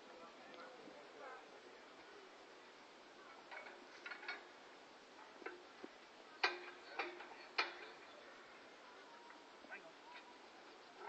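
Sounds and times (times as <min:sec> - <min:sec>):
hand winch metallic clicks: 0:06.4 - 0:08.0.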